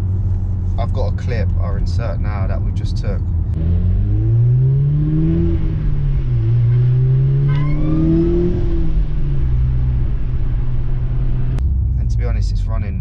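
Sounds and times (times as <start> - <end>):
car engine revving: 0.0 - 12.9.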